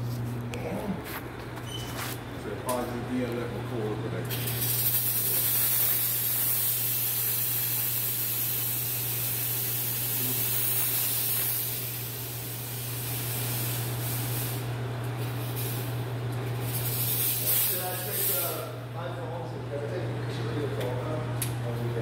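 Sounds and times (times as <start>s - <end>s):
fogger spraying hiss: 4.3s - 16.0s, 16.6s - 18.8s.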